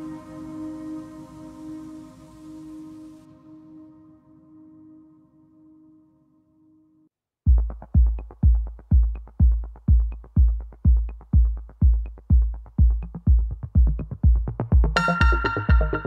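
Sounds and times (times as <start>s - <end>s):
electronic dance music: 7.6s - 16.0s.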